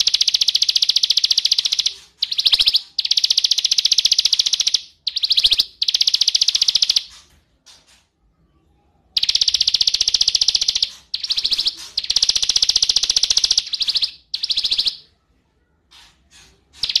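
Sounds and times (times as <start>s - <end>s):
songbird trilling: 0.0s - 7.1s, 9.2s - 15.0s
bird chirps: 0.0s - 7.9s, 9.2s - 15.1s, 15.9s - 17.0s.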